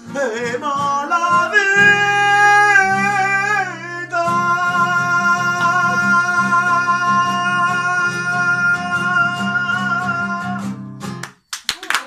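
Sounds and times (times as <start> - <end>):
man singing: 0.0 - 10.9
acoustic guitar strumming: 0.0 - 11.3
applause: 11.2 - 12.0.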